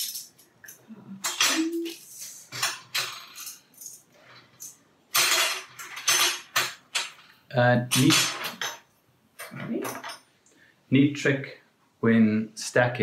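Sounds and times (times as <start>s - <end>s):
metal spoons clinking: 0.0s - 7.2s, 9.4s - 10.3s.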